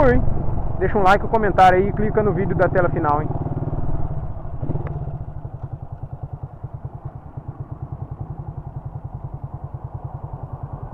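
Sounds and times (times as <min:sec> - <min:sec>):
motorcycle engine idling: 0:00.0 - 0:10.9.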